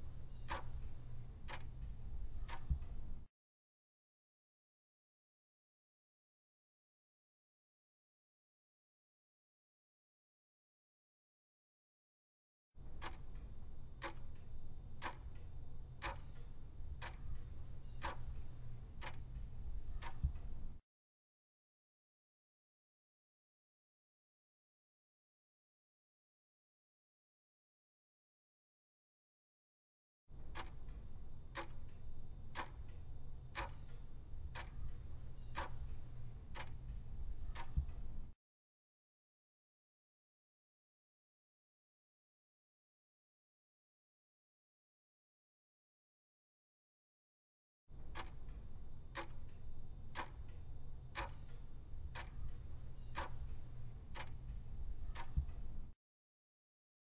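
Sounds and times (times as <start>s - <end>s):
clock ticking: 0.0s - 3.3s, 12.8s - 20.8s, 30.3s - 38.4s, 47.9s - 56.0s
steady low hum: 0.0s - 3.3s, 12.8s - 20.8s, 30.3s - 38.4s, 47.9s - 56.0s.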